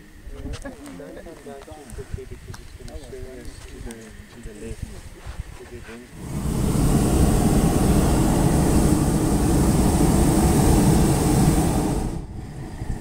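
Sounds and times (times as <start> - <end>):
propane burner roaring: 6.1 - 13.0.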